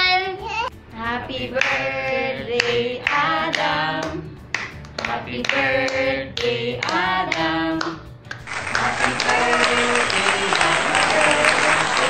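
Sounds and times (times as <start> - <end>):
voices singing: 1.0 - 4.4, 5.0 - 12.0
hand claps: 1.6 - 1.8, 2.6 - 12.0.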